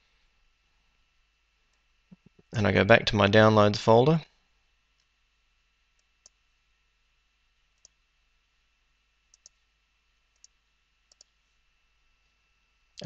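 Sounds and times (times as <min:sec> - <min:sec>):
computer mouse clicks: 0:06.0 - 0:06.4, 0:07.8 - 0:08.0, 0:09.3 - 0:09.6, 0:10.3 - 0:11.4.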